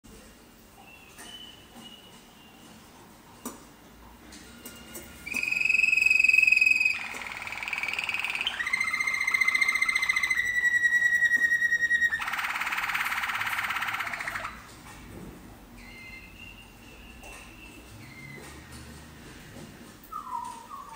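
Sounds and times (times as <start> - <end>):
canary singing trills: 5.3 - 14.7, 20.1 - 20.9.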